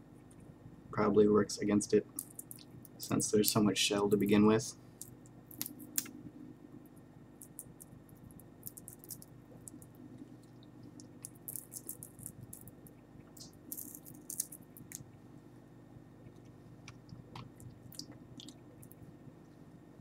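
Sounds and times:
faint low hum: 0.0 - 20.0
dry crackles and clicks: 2.1 - 4.4, 5.0 - 6.2, 6.8 - 15.1.

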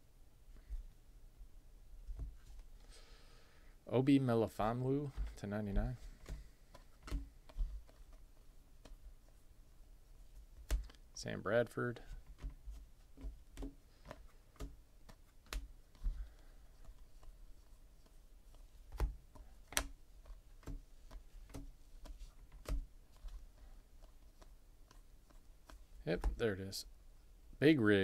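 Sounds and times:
trading cards clicking and snapping: 6.1 - 8.2, 10.6 - 11.0, 12.2 - 17.3, 18.9 - 26.4.

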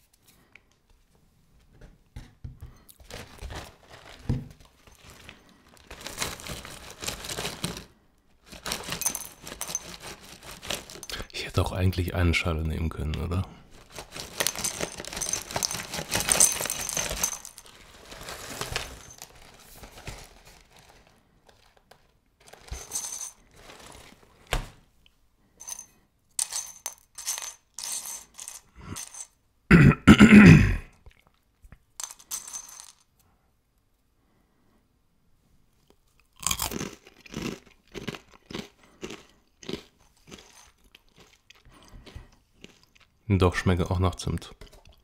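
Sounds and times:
plastic bag rustling: 3.0 - 11.3, 13.6 - 24.8
cereal pieces clicking and dropping: 8.5 - 11.2, 13.8 - 20.3, 21.5 - 24.1, 26.4 - 29.3, 32.0 - 33.1, 36.4 - 41.6.

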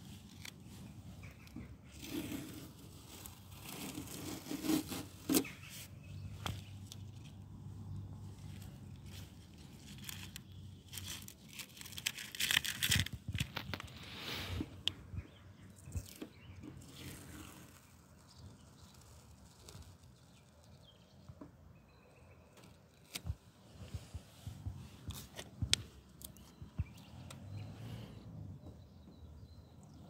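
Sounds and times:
masking tape peeling off: 1.3 - 5.6.

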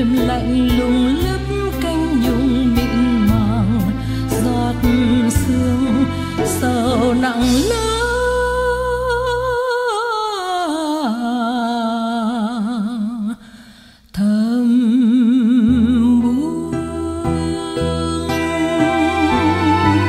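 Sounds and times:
soft accompaniment: 0.0 - 9.6, 15.6 - 20.0.

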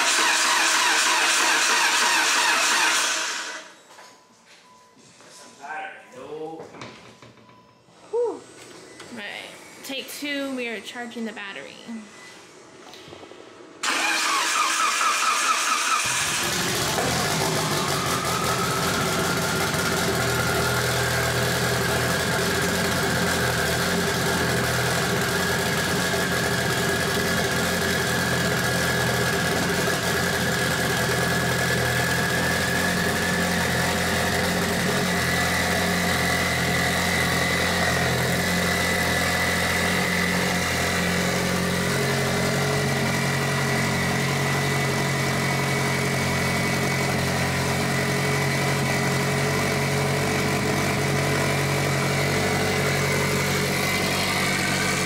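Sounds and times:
car engine idling: 13.8 - 55.0.

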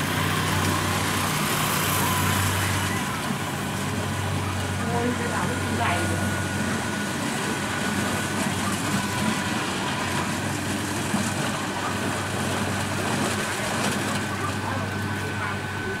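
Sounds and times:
combine harvester diesel engine drone: 0.0 - 16.0
machine noise: 0.0 - 16.0.

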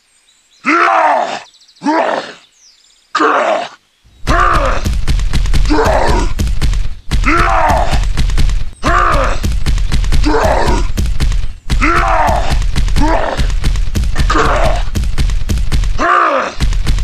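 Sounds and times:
person groaning and straining: 3.2 - 5.0, 5.6 - 6.4, 7.2 - 8.1, 8.8 - 9.6, 10.2 - 11.0, 11.7 - 15.0, 15.9 - 16.7.

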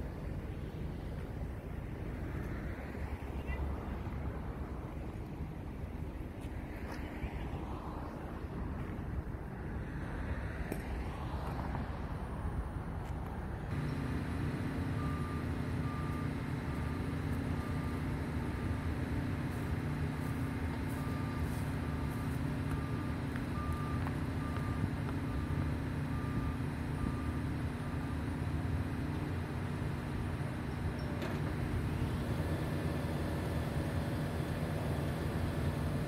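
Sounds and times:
diesel engine running: 0.0 - 36.0
reversing alarm beeping: 13.7 - 18.4, 20.9 - 27.6.

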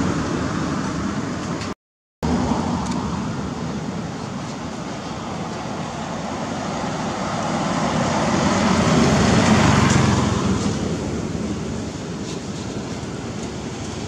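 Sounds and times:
motor vehicle passing: 6.4 - 11.4.

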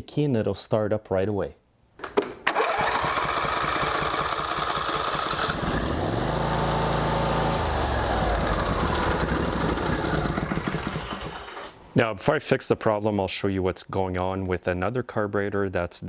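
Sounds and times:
electric starter cranking engine: 2.5 - 11.8
lawn tractor engine running: 2.5 - 11.8.

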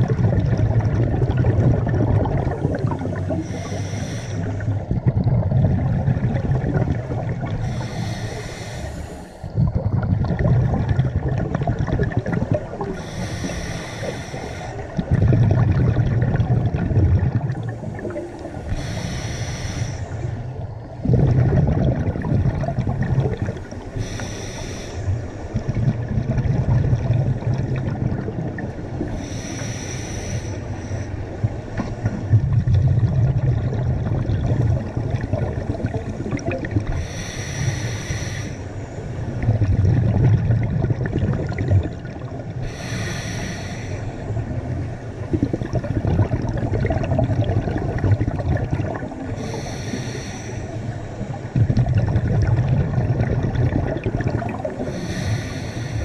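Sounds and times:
exhaled bubbles rumbling: 0.0 - 56.0
regulator inhale hiss: 2.6 - 4.8, 7.5 - 9.5, 12.9 - 15.0, 17.6 - 20.6, 23.6 - 25.5, 29.0 - 32.0, 36.8 - 39.2, 42.5 - 44.4, 49.2 - 51.3, 54.6 - 56.0.

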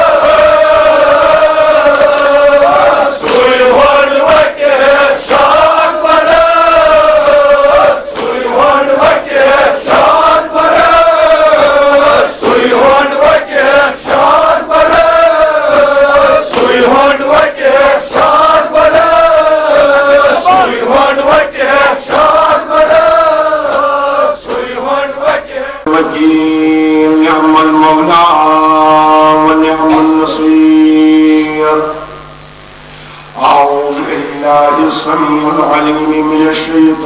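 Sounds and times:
men chanting in unison: 0.0 - 32.1, 33.4 - 37.0
chest-beating slaps: 8.1 - 8.4, 15.7 - 17.4.

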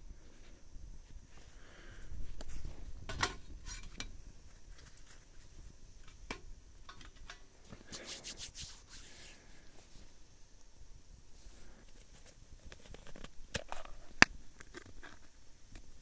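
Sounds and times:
rubbing and scraping: 7.7 - 9.4.

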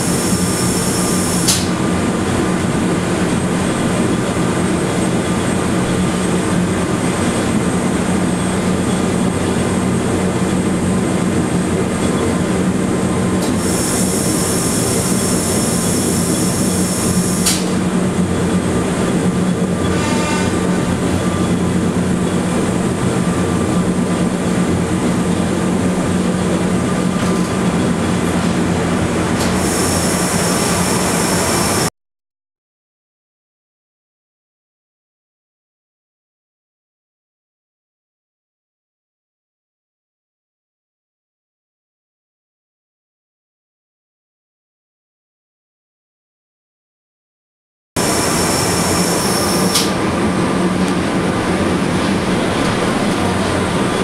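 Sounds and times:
railcar drive humming: 0.0 - 31.9, 48.0 - 54.0
wheels rumbling: 0.0 - 31.9, 48.0 - 54.0.

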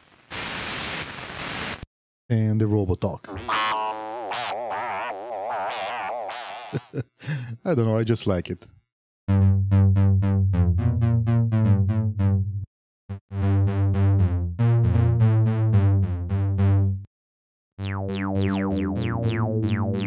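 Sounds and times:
synth bass repeated notes: 9.3 - 17.1, 17.8 - 20.0.

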